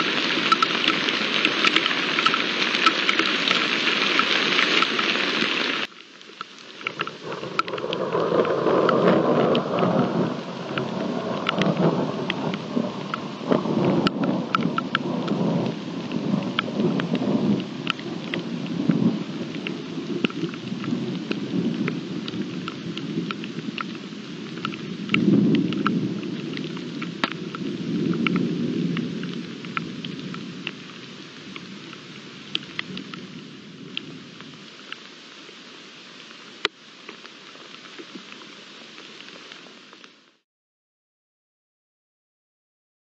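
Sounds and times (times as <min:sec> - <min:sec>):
raindrops ticking close by: 0:00.0 - 0:40.4
steady rain: 0:00.0 - 0:40.4
thunder rumbling: 0:07.0 - 0:34.6.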